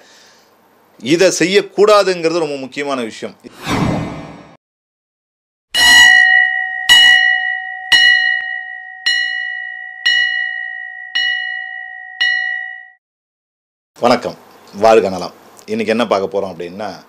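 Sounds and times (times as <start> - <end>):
bell ringing: 5.8 - 13.0.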